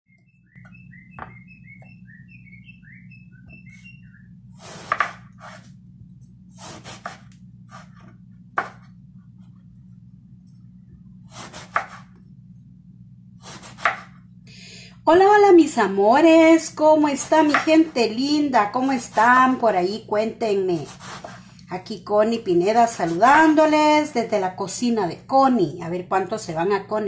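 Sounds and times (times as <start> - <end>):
steady low hum: 0.1 - 27.0
knife slicing eggplant: 4.6 - 5.7, 6.6 - 8.9, 11.3 - 12.2, 13.4 - 14.2, 20.8 - 21.6.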